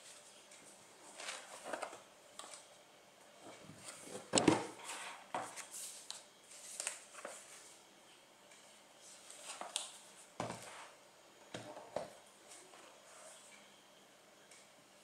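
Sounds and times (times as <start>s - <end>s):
laptop handling rustles and scrapes: 1.0s - 2.7s, 3.4s - 7.8s.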